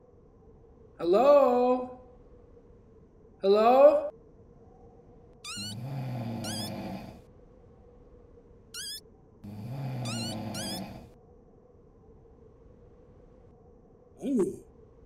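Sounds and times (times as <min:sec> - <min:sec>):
sliding high whistles: 0:05.5 - 0:07.1, 0:08.8 - 0:09.0, 0:10.0 - 0:11.0
cartoon rattling snores: 0:05.5 - 0:07.2, 0:09.5 - 0:11.1.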